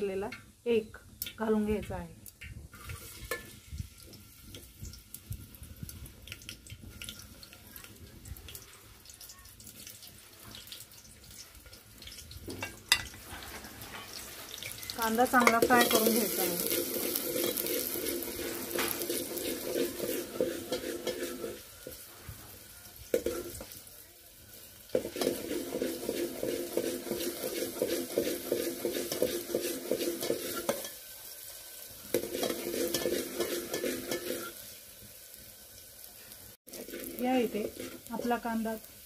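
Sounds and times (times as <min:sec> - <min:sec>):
onion sizzling in hot oil: 0:00.0 - 0:39.0
metal spoon scraping a pot: 0:12.7 - 0:22.0, 0:25.0 - 0:31.0, 0:32.2 - 0:34.6, 0:36.7 - 0:38.4.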